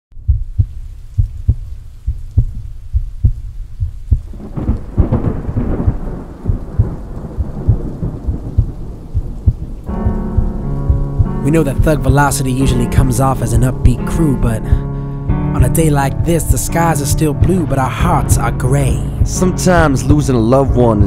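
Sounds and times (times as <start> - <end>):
thunder rolling: 0.2 - 12.4
heavy rain drops knocking: 0.2 - 14.9, 15.6 - 21.0.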